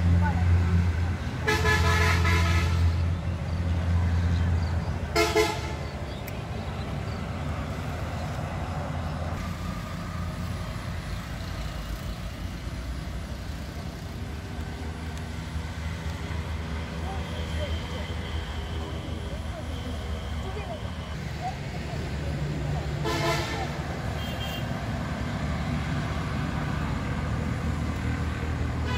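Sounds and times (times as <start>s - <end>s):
vehicle horn tooting: 1.4s - 2.9s, 5.2s - 5.8s, 23.0s - 24.7s.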